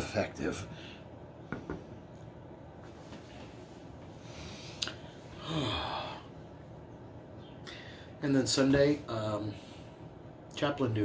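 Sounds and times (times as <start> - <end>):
man sighing: 5.3 - 6.4.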